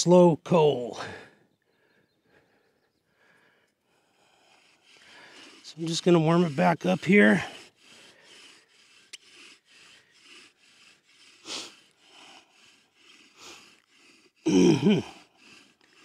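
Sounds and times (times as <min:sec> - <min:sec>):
bow drill rasping: 0:03.6 - 0:16.0
man's short vocal sound: 0:14.5 - 0:15.1.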